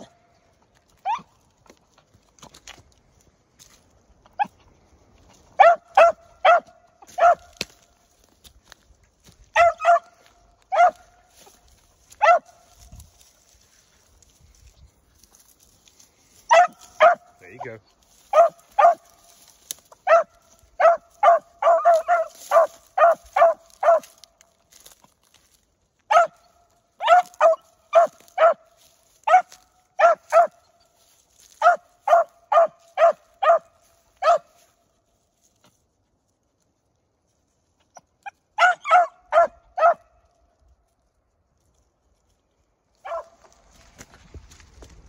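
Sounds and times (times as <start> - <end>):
dog barking: 5.6 - 7.6, 9.5 - 11.2, 12.2 - 12.6, 16.5 - 17.6, 18.3 - 19.2, 20.0 - 24.2, 26.1 - 30.6, 31.6 - 34.6, 38.6 - 40.1, 43.0 - 43.4.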